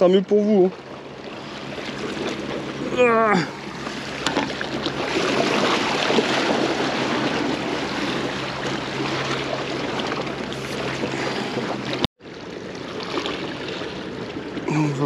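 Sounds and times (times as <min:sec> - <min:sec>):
sea water splashing on rocks: 0:03.8 - 0:14.7.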